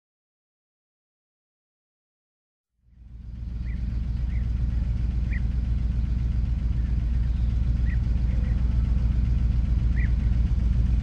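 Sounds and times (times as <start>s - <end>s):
diesel engine deep rumble: 2.8s - 11.0s.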